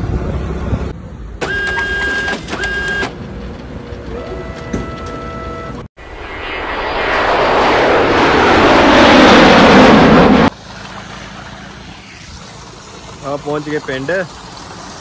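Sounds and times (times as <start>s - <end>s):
petrol pump hum with tones: 1.3s - 5.9s
rushing wind: 6.0s - 10.6s.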